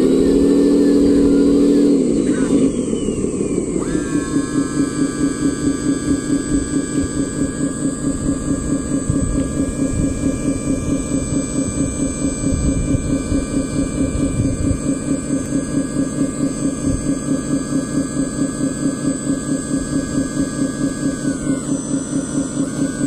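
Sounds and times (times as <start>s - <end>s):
electric whine of lift mechanism: 0.0s - 23.0s
low rhythmic throb: 0.0s - 23.0s.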